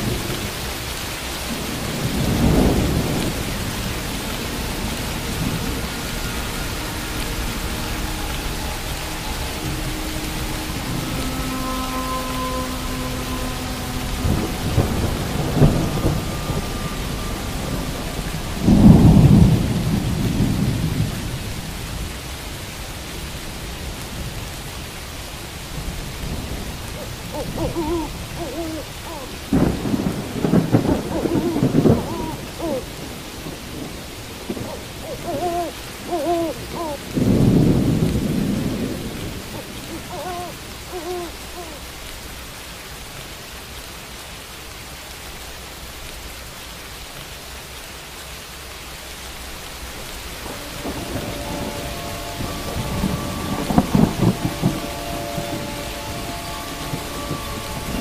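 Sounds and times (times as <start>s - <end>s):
thunder rumbling: 0.0s - 41.9s, 50.2s - 58.0s
steady rain: 0.0s - 58.0s
owl hooting: 26.9s - 29.5s, 31.0s - 32.9s, 34.6s - 37.1s, 39.6s - 41.8s.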